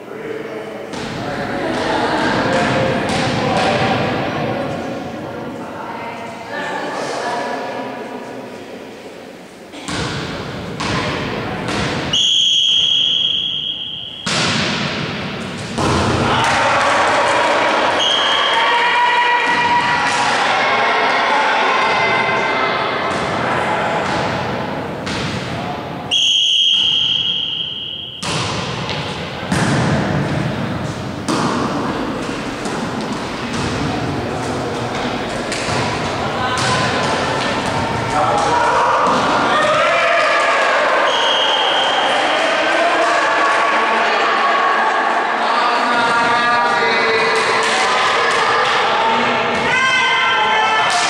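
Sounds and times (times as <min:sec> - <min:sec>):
volleyball hits echoing: 0:00.9 - 0:04.9, 0:09.7 - 0:18.6, 0:19.3 - 0:41.8
referee's whistle blast: 0:12.1 - 0:14.3, 0:18.0 - 0:18.6, 0:26.1 - 0:28.3, 0:41.1 - 0:42.0.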